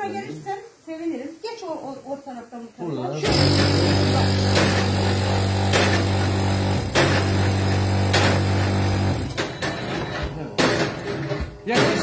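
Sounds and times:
machine hum: 0:03.2 - 0:11.5
pestle knocking in steel pot: 0:10.6 - 0:12.0.

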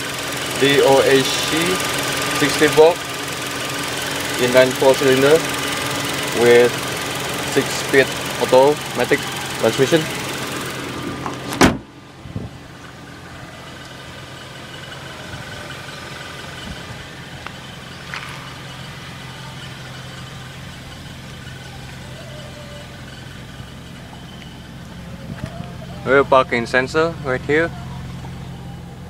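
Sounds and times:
car engine idling: 0:00.0 - 0:29.0
car hood slamming: 0:11.0 - 0:11.9.

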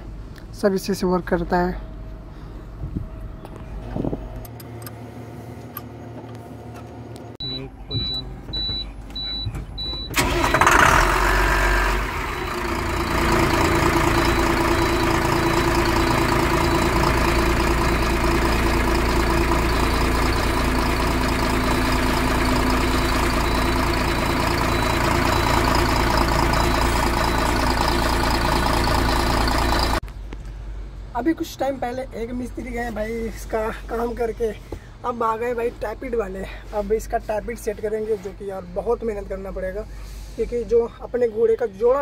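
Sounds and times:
diesel engine starting and idling: 0:04.3 - 0:30.0
rapid high beeping: 0:07.4 - 0:10.2, 0:12.3 - 0:30.0.

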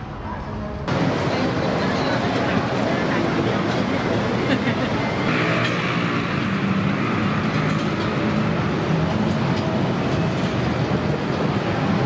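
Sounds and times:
crowd chatter: 0:00.0 - 0:07.4.

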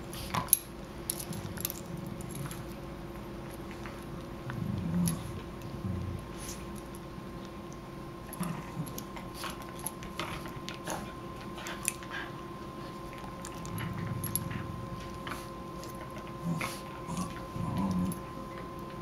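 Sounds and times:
dog low grumbles: 0:04.4 - 0:06.7, 0:13.3 - 0:19.0.

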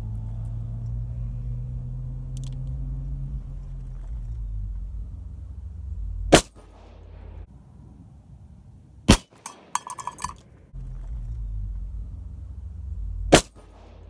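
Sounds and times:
low hum: 0:00.0 - 0:14.0
revolver shot: 0:06.3 - 0:07.4, 0:13.3 - 0:14.0.

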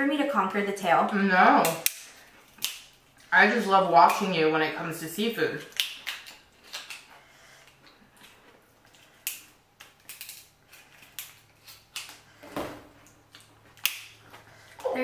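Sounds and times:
scissors cracking lobster shell: 0:01.6 - 0:03.0, 0:05.6 - 0:07.1, 0:09.1 - 0:12.2, 0:13.4 - 0:14.1.

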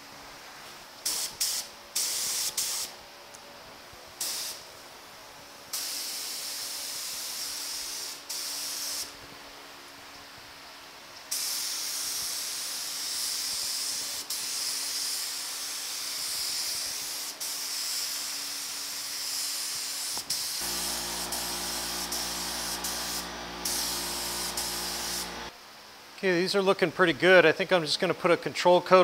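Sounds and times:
paint spray gun hissing: 0:01.0 - 0:02.9, 0:04.2 - 0:04.6, 0:05.7 - 0:09.1, 0:11.3 - 0:25.5
low steady hum: 0:20.6 - 0:25.5.

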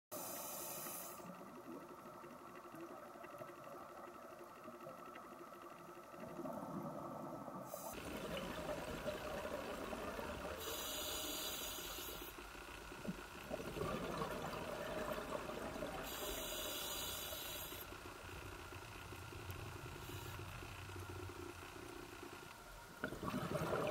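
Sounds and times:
muffled underwater ambience: 0:00.2 - 0:23.9
exhaled bubbles hissing: 0:06.2 - 0:18.0, 0:23.0 - 0:23.9.

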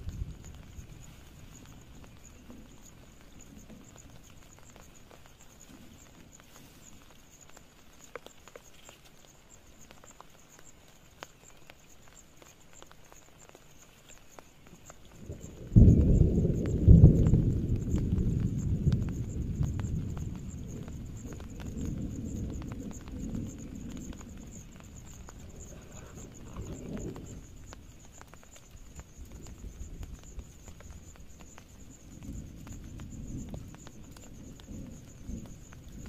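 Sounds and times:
rolling thunder rumble: 0:00.0 - 0:05.1, 0:15.1 - 0:36.0
rain patter: 0:00.0 - 0:36.0.

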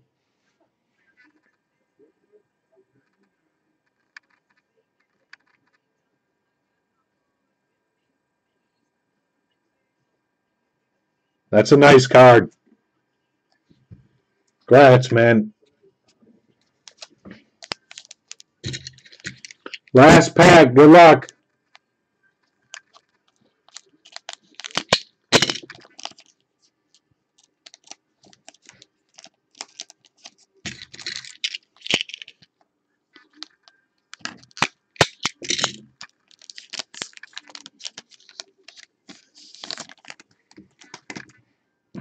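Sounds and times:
cards rustling: 0:16.8 - 0:21.3, 0:22.7 - 0:32.5, 0:33.2 - 0:41.4
foil wrapper tearing and crinkling: 0:16.9 - 0:20.0, 0:23.7 - 0:26.3, 0:27.7 - 0:32.4, 0:33.3 - 0:41.1.

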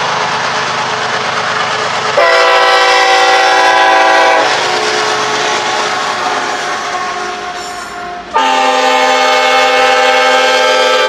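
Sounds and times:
freight locomotives passing: 0:00.0 - 0:11.0
locomotive air horn blast: 0:02.2 - 0:11.0.

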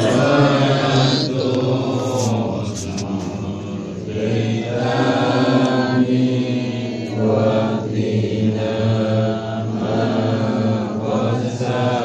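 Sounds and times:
man chanting prayer: 0:00.0 - 0:09.4.

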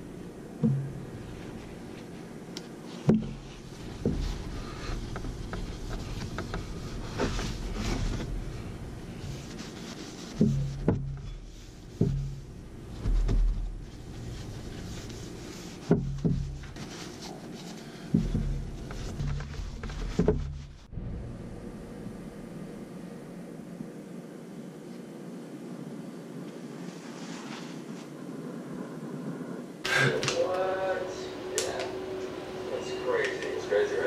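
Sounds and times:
knocks on wooden workbench: 0:00.6 - 0:00.9
cloth rubbing wood: 0:00.6 - 0:20.9.

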